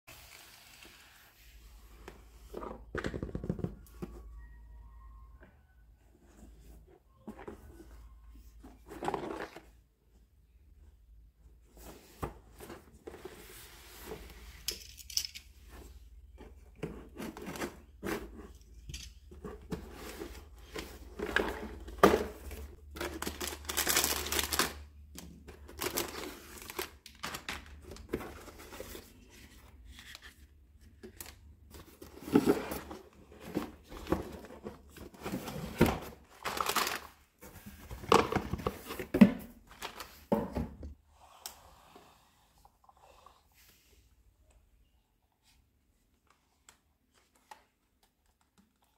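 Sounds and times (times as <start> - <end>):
plastic bags crinkling and tearing: 22.9 - 24.9, 25.7 - 28.1, 36.4 - 37.2
cardboard carton opened: 31.8 - 39.2.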